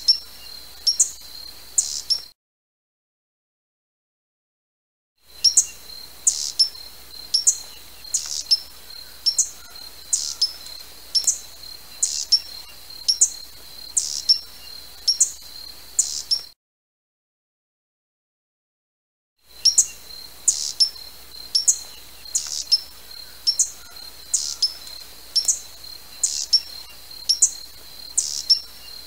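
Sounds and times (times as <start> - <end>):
hummingbird chip calls: 0.0 - 2.3, 5.4 - 16.5, 19.5 - 29.0.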